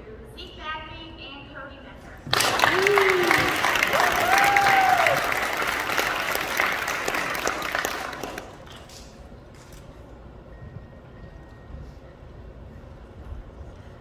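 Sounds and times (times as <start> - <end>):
audience applauding: 2.3 - 8.9
person whooping: 2.6 - 5.5.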